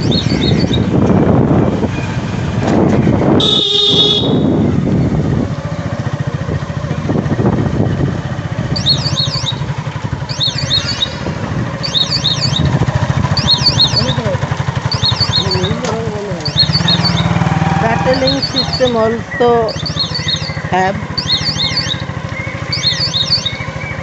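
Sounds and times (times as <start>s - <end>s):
motorcycle engine running: 0.0s - 24.0s
turn-indicator buzzer chirping: 3.4s - 4.4s, 8.8s - 9.6s, 11.8s - 12.7s, 14.9s - 15.7s, 16.5s - 17.4s, 19.7s - 22.1s, 22.7s - 23.6s
horn blast: 3.4s - 4.7s.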